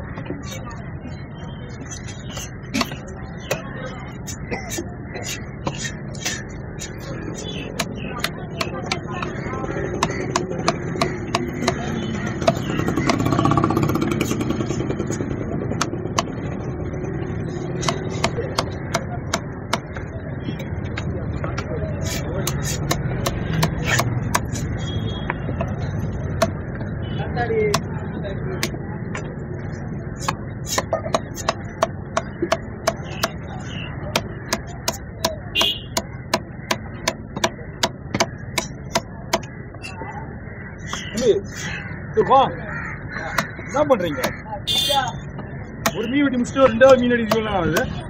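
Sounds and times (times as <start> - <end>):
low engine rumble: 0.0 - 48.0
steady background noise: 0.0 - 48.0
knife chopping on wooden block: 2.3 - 3.7, 4.6 - 9.4, 10.0 - 14.6, 17.8 - 20.0, 22.1 - 24.7, 27.7 - 27.9, 28.6 - 29.3, 30.2 - 33.4, 34.1 - 39.5, 47.2 - 47.9.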